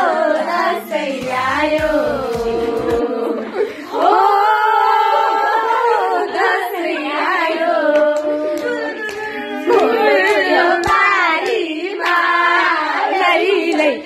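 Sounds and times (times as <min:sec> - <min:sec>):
women singing together: 0:00.0 - 0:14.0.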